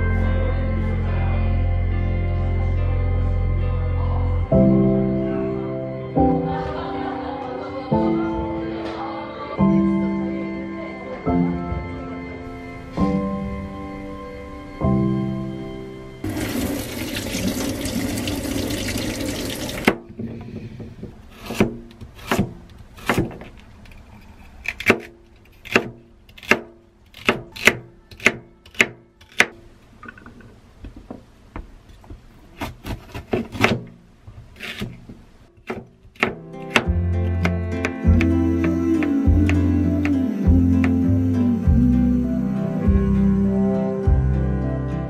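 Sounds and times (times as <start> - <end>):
water running from tap: 16.2 - 20.0
knife chopping on cutting board: 21.3 - 23.5, 24.6 - 29.6, 32.6 - 33.9, 34.6 - 40.2.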